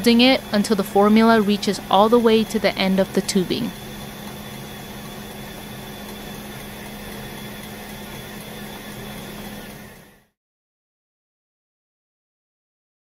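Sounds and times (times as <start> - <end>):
feeding pump humming: 0.0 - 10.3.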